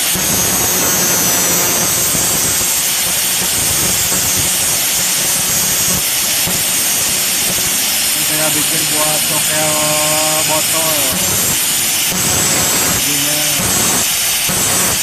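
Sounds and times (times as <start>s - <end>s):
angle grinder grinding metal blade: 0.0s - 15.0s.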